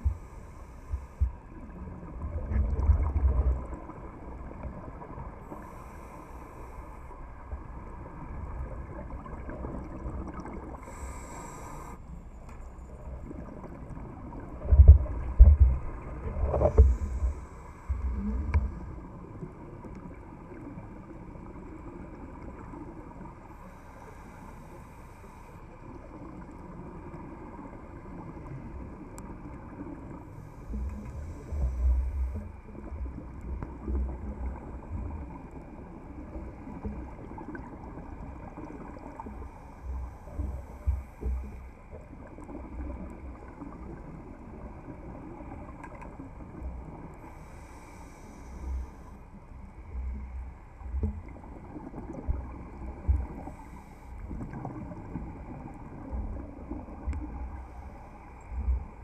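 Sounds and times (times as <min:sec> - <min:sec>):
low underwater rumble: 0:00.0 - 0:11.3, 0:12.1 - 0:59.0.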